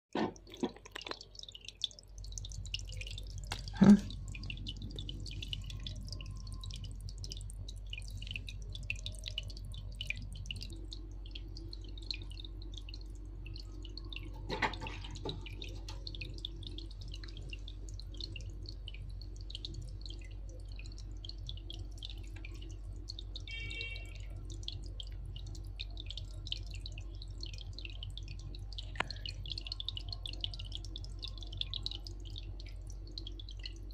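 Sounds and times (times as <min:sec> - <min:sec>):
aquarium water dripping: 0:00.1 - 0:33.9
constant low hum: 0:00.2 - 0:33.9.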